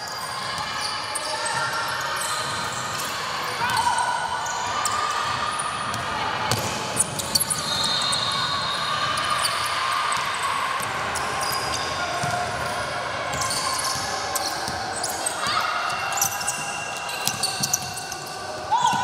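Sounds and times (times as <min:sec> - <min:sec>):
voices echoing in hall: 0:00.0 - 0:19.0
shoe squeaks: 0:07.0 - 0:09.7, 0:11.2 - 0:19.0.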